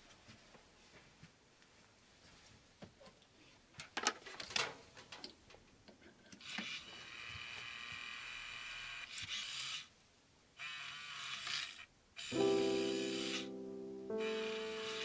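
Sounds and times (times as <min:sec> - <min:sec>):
mechanical whirring rattle: 0:06.4 - 0:09.9.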